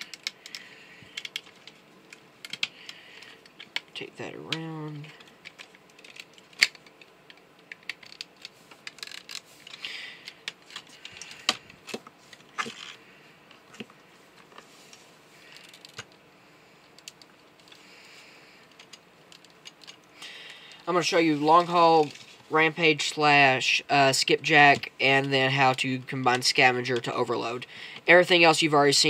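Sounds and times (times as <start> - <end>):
plastic parts clicking: 0.0 - 13.0, 15.5 - 16.2, 18.7 - 20.8.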